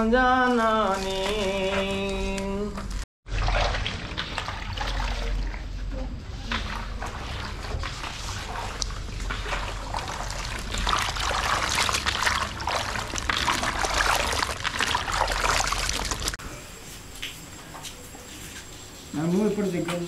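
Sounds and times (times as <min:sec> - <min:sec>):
water trickling and splashing: 0:03.2 - 0:16.4.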